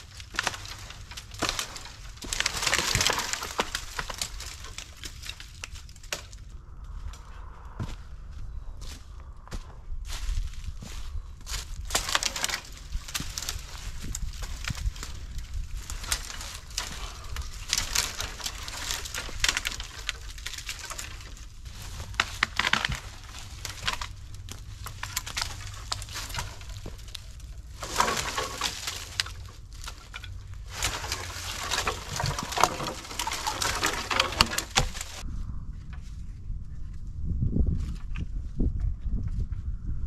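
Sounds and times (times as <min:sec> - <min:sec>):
dry branches crackling and snapping: 0:00.0 - 0:39.4.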